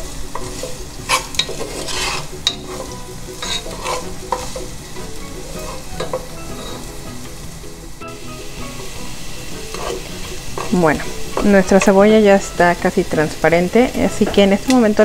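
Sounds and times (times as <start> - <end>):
onion sizzling in oil: 0.0 - 15.0
utensil scraping and clicking on pot: 0.4 - 4.7, 9.7 - 12.0.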